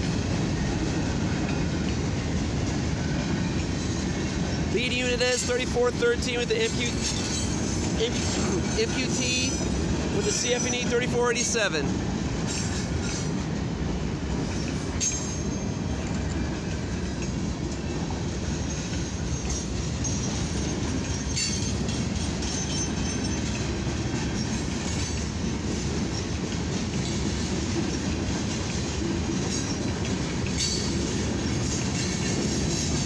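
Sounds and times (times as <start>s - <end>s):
wheels clacking over rail joints: 0.0s - 13.6s, 14.3s - 33.0s
train wheels rumbling on rail: 0.0s - 33.0s.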